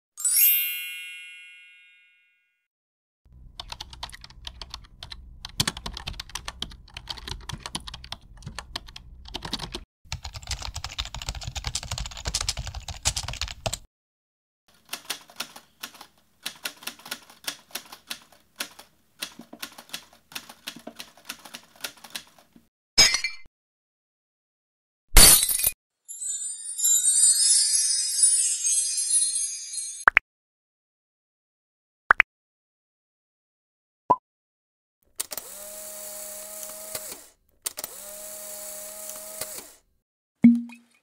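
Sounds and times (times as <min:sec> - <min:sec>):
chime: 0:00.2 - 0:02.6, 0:26.1 - 0:30.0.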